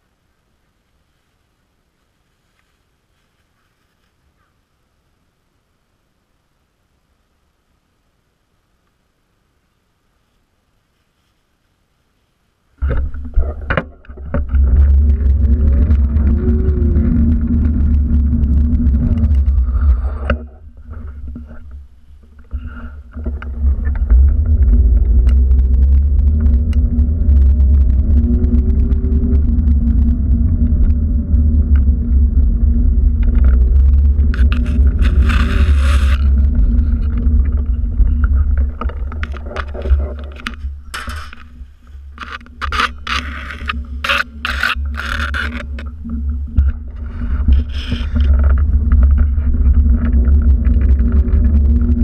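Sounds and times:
scrapes and rustles: 0.6s - 4.6s, 10.1s - 27.1s, 33.1s - 52.0s
wind rumble: 12.8s - 52.0s.

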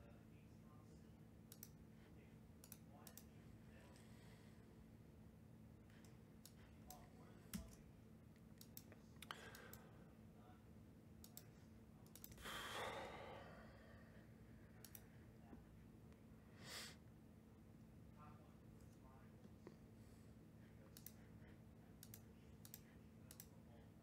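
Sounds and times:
person sighing: 12.4s - 14.1s.

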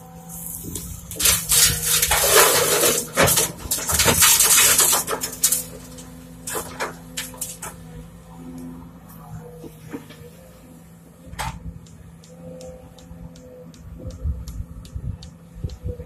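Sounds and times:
excavator diesel engine hum: 0.0s - 16.0s
dirt and rocks striking metal: 0.7s - 7.9s.

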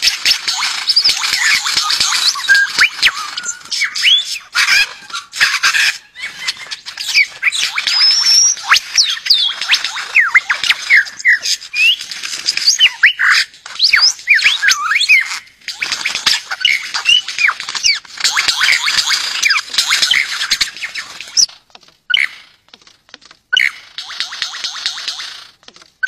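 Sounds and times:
lyrebird song: 0.0s - 26.0s.

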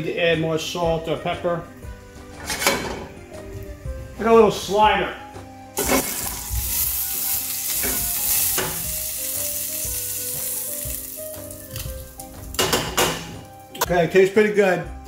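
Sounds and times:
meat sizzling in oil: 5.7s - 13.7s.

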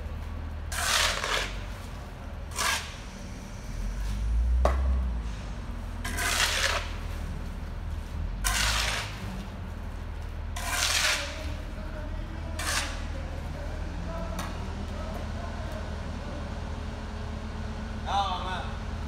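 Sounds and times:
low engine rumble: 0.0s - 19.0s
shovel scraping concrete: 0.7s - 3.2s, 6.0s - 7.3s, 8.4s - 9.5s, 10.6s - 11.7s, 12.5s - 13.2s.

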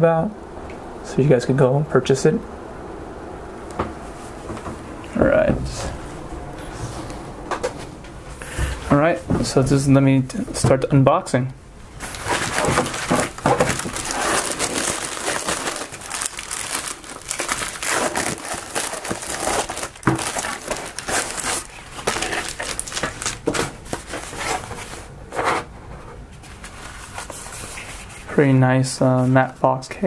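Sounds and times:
plastic mailer crinkling: 12.0s - 25.1s.

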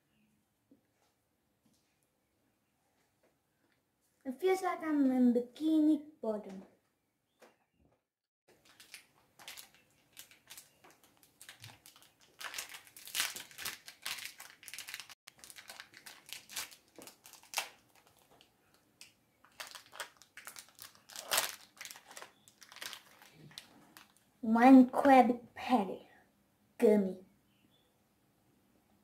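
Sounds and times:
plastic candy wrapper crinkling: 8.5s - 24.3s.

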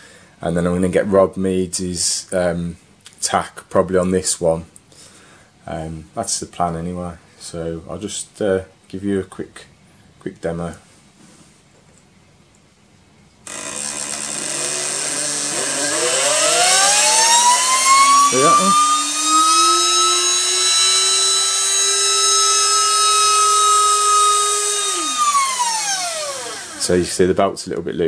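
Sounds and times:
turbine motor whine: 13.5s - 27.2s.

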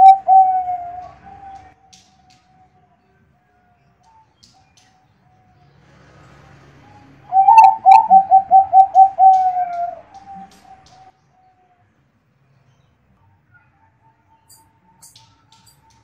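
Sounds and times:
dove cooing: 0.0s - 1.7s, 7.3s - 11.1s.

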